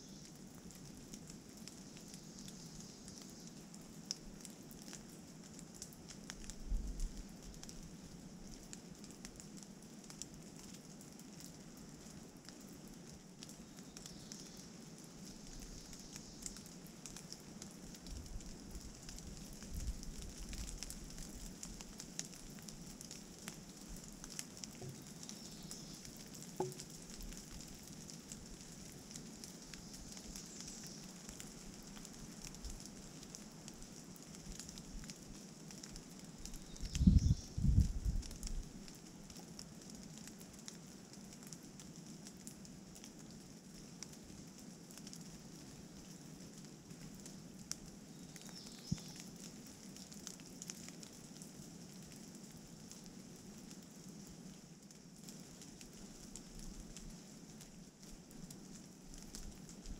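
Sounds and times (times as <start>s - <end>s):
rain falling steady hiss: 0.0s - 59.9s
drops pattering on leaves: 0.1s - 59.9s
wind buffeting microphone: 36.9s - 38.3s.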